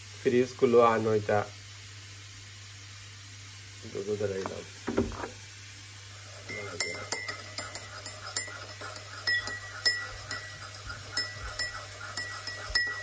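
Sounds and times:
teaspoon clinking in ceramic mug: 0:06.5 - 0:13.0.

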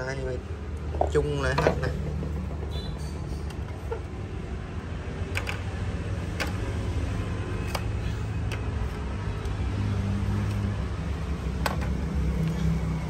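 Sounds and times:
low vehicle rumble: 0:00.0 - 0:13.0
plastic panels clicking and knocking: 0:01.0 - 0:02.7, 0:05.2 - 0:06.8, 0:11.5 - 0:12.2.

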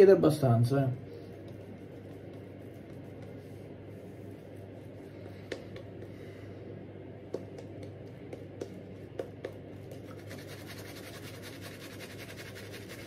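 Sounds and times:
shaving brush scratchy swishing: 0:10.0 - 0:13.0.

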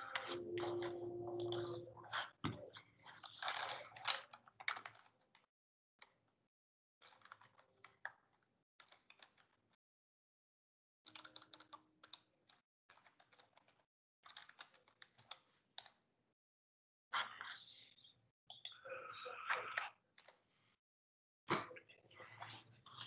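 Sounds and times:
keyboard typing: 0:00.0 - 0:02.1.

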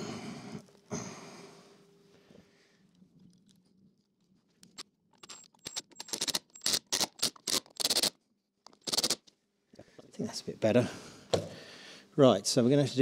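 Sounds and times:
screwdriver turning a screw: 0:04.7 - 0:09.3.

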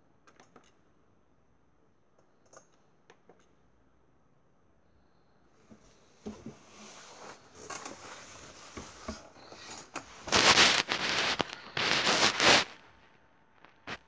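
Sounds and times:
hand rubbing over phone: 0:06.8 - 0:12.8
phone microphone handling rustle: 0:07.7 - 0:12.8.

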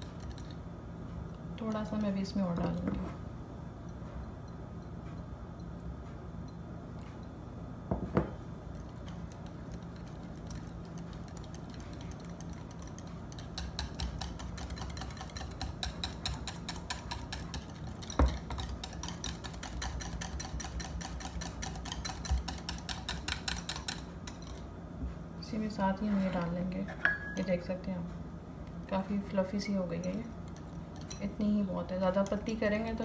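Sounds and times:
wire whisk beating in bowl: 0:08.7 - 0:24.6, 0:30.0 - 0:33.0.

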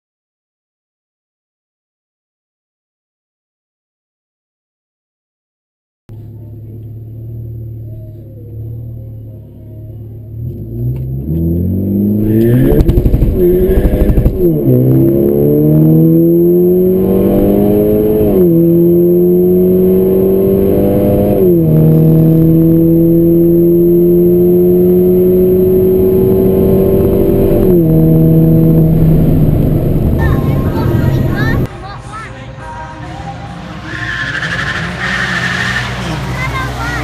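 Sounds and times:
car engine accelerating hard: 0:06.1 - 0:31.7, 0:33.6 - 0:37.0.

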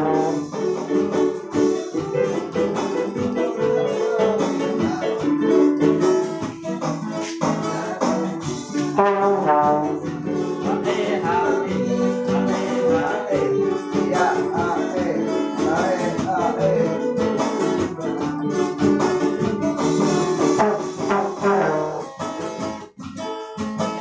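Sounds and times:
trombone: 0:00.0 - 0:00.6, 0:08.8 - 0:10.2, 0:19.9 - 0:22.2
electronic keyboard: 0:00.0 - 0:09.0, 0:09.6 - 0:23.3
acoustic guitar: 0:00.0 - 0:24.0
steady beat: 0:00.0 - 0:24.0.

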